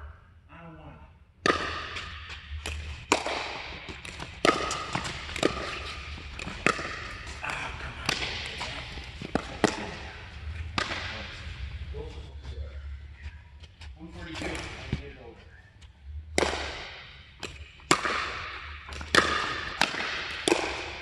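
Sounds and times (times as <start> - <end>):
paddles striking plastic ball: 2.6 - 7.3.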